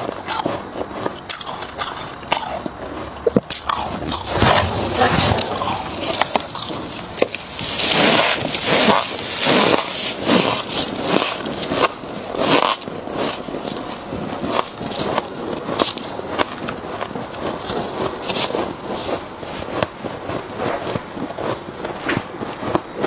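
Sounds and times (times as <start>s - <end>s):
frost being chewed: 0.0s - 22.8s
gloved hands scraping frost: 3.5s - 15.9s.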